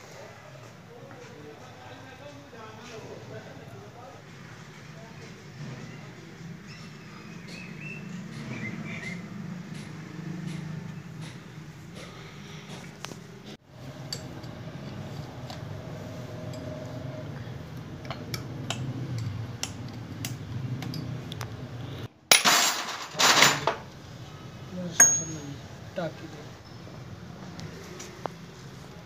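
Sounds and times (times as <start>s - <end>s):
metal parts clinking on concrete: 22.3s - 23.8s, 25.0s - 25.6s.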